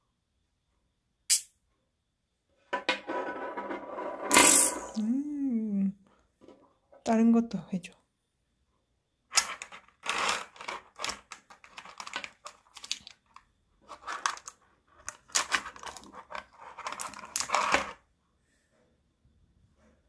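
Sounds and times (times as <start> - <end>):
magnets clicking and rattling: 9.3 - 18.0.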